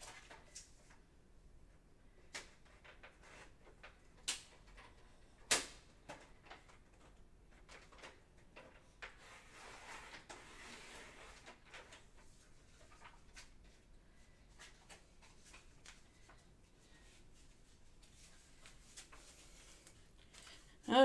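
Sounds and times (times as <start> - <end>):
scraping rustle: 9.1 - 13.5.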